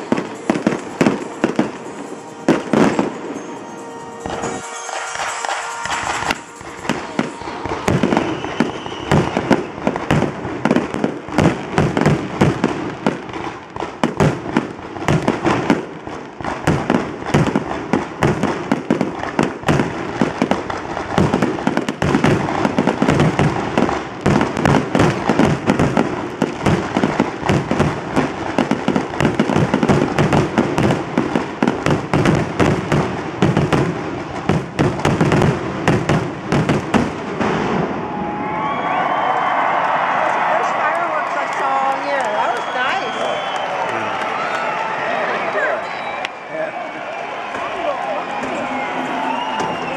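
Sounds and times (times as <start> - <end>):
fireworks bursting and crackling: 0.0 - 49.9.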